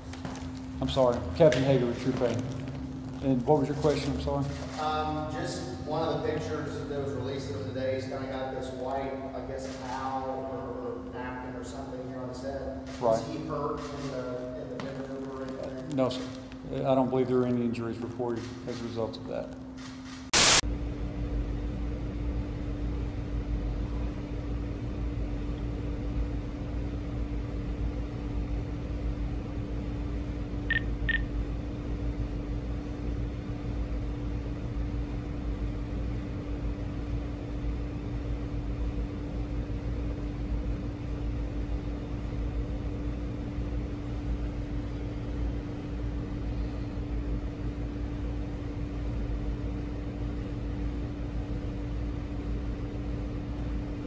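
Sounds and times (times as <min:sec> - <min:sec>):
electrical hum: 0:00.0 - 0:54.0
loud burst of noise: 0:20.3 - 0:20.6
short high beeps: 0:30.7 - 0:31.2.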